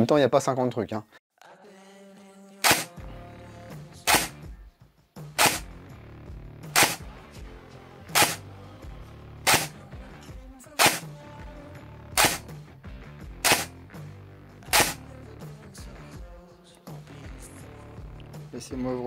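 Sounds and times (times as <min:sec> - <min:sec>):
background music: 0:01.4 - 0:19.0
airsoft rifle single shots: 0:02.6 - 0:03.0, 0:04.1 - 0:04.4, 0:05.4 - 0:05.7, 0:06.7 - 0:07.0, 0:08.2 - 0:08.4, 0:09.5 - 0:09.8, 0:10.8 - 0:11.1, 0:12.2 - 0:12.5, 0:13.4 - 0:13.7, 0:14.7 - 0:15.0.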